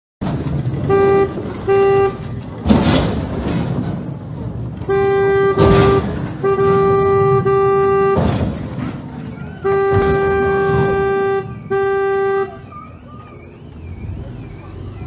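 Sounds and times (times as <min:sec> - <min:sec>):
vehicles crashing: 0:00.2 - 0:15.0
car horn beeping: 0:00.7 - 0:02.4, 0:04.8 - 0:08.5, 0:09.4 - 0:13.0.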